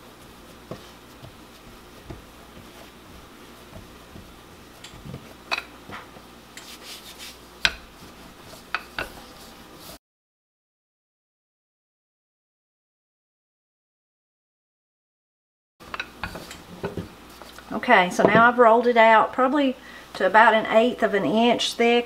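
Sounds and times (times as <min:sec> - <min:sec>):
hands patting dough: 0:00.0 - 0:10.0
rolling pin knocking on dough: 0:00.6 - 0:06.3.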